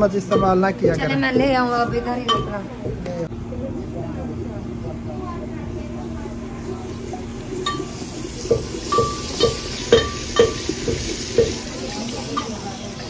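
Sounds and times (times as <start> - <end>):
wooden ladle knocking against pot: 0.3 - 0.7, 8.5 - 11.6
spices sizzling in fat: 5.9 - 13.0.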